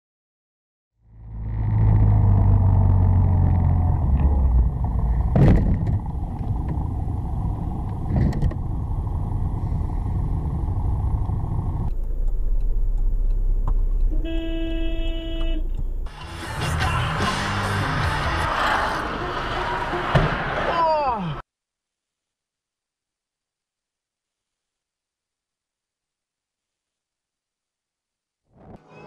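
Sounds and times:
road traffic and engine rumble: 1.0 - 20.7
car horn: 14.1 - 20.6.

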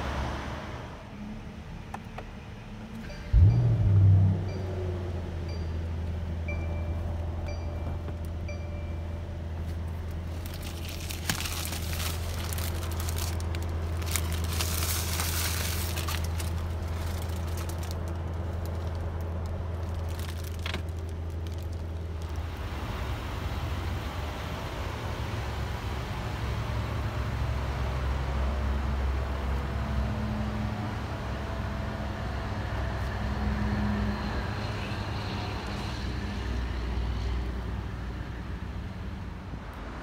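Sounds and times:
car engine idling: 1.8 - 27.6
dashboard chime: 6.5 - 9.2
plastic wrap crinkling: 9.9 - 22.5.

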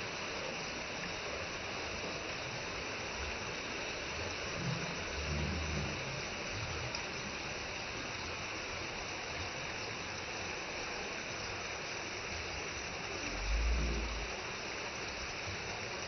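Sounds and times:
waterfall rushing over rock: 0.0 - 16.0
low rumble: 13.3 - 14.4.

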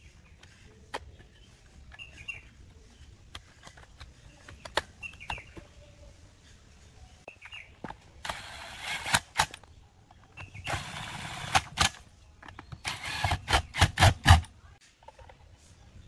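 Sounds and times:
impact driver driving screws: 10.7 - 12.0, 12.8 - 14.5.

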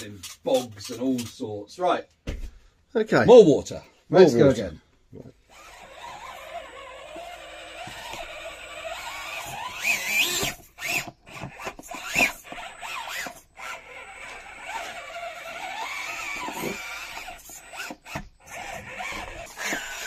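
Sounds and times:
small electric motor whining: 5.4 - 20.0.

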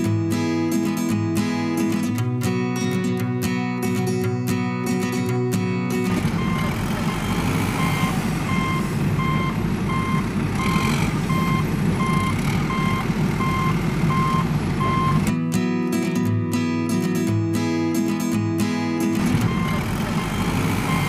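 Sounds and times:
reversing alarm beeping: 6.1 - 15.3, 19.3 - 21.0.

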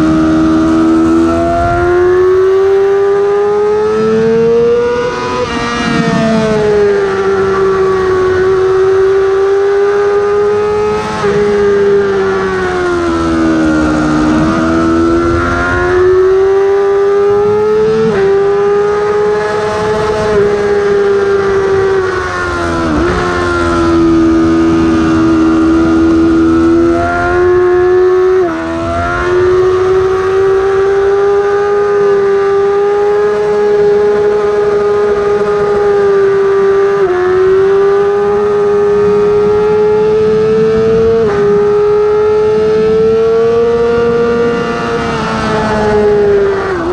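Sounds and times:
motorcycle engine revving high: 0.0 - 46.9
wind rush: 1.0 - 3.4, 11.0 - 30.8.

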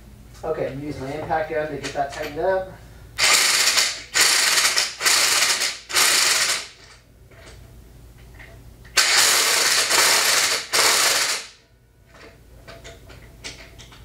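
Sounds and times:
impact wrench hammering: 3.2 - 6.8, 9.0 - 11.6.

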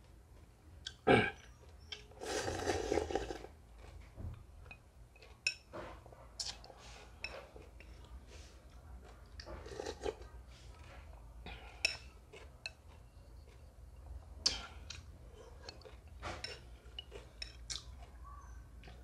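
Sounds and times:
chewing and slurping: 0.4 - 4.1, 5.2 - 10.8, 14.8 - 18.2.

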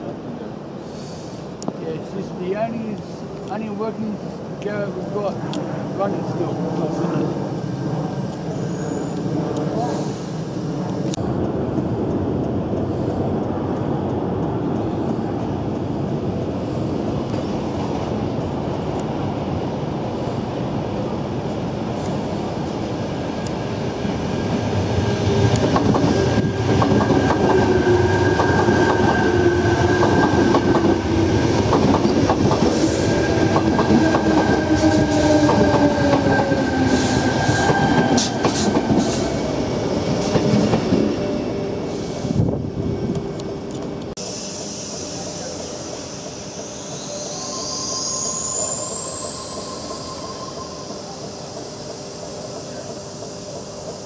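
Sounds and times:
electric train rumbling: 0.0 - 54.0
train whining tones: 6.0 - 54.0
steady high tone: 42.8 - 54.0.

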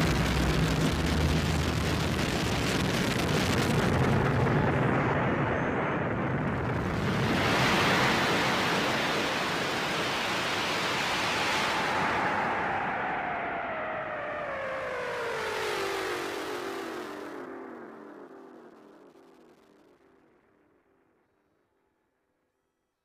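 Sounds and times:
low drone tones: 0.0 - 6.8.

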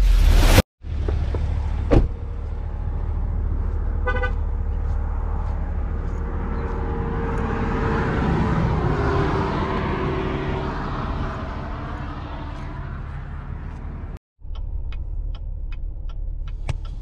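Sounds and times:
vehicle engine idling: 0.8 - 7.4.

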